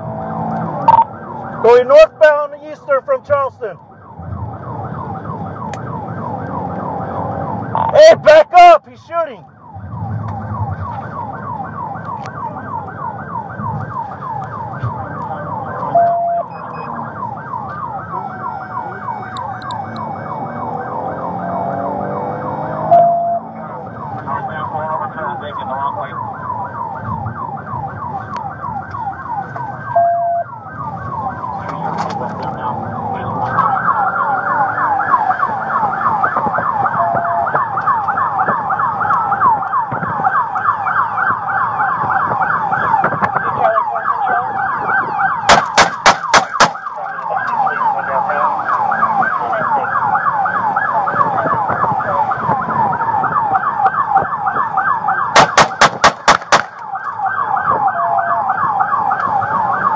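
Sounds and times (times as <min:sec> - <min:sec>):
engine and road noise: 0:00.0 - 0:59.9
police siren yelp: 0:00.0 - 0:59.9
handgun shots: 0:45.5 - 0:46.8, 0:55.4 - 0:56.8.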